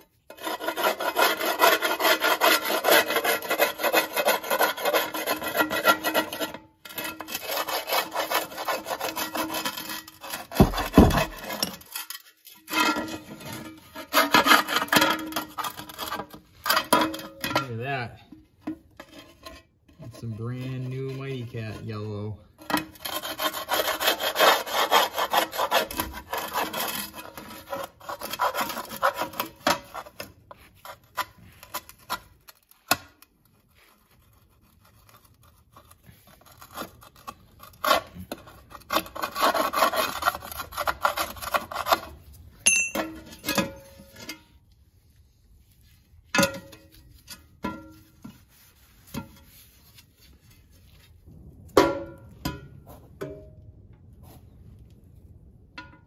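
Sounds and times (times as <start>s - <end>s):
metal scraper rasping on steel: 0.0s - 17.8s, 18.8s - 44.6s.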